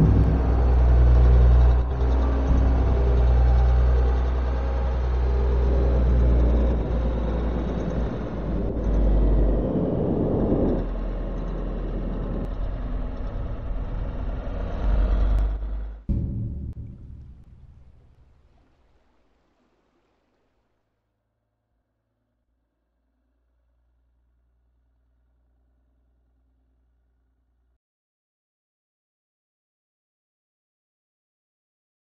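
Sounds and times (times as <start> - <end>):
tunnel boring machine rumbling: 0.0 - 18.6.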